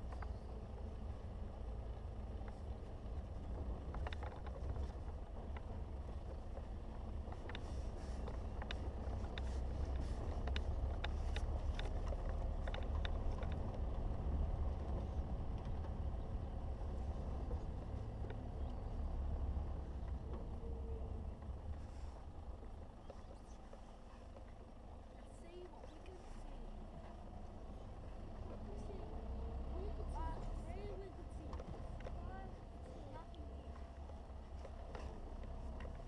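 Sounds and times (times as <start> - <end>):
vehicle rumbling on dirt track: 0.0 - 36.0
sharp clicks and knocks: 3.5 - 16.1.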